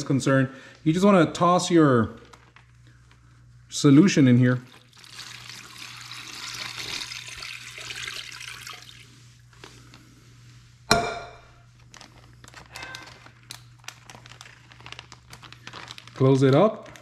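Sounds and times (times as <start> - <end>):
plastic bag crinkling: 2.1 - 3.2, 11.7 - 17.0
liquid pouring into plastic bag: 4.5 - 9.2, 11.8 - 17.0.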